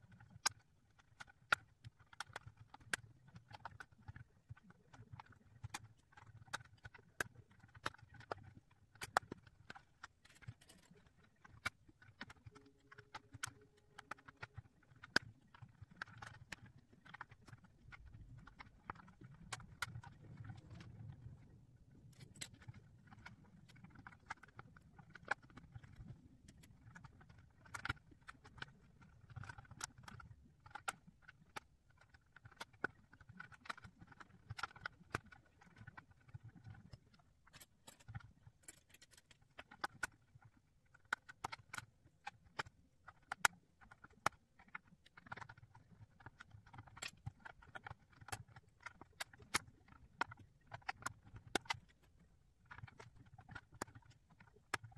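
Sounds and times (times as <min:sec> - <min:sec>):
plastic puzzle pieces clicking: 0:00.1 - 0:54.9.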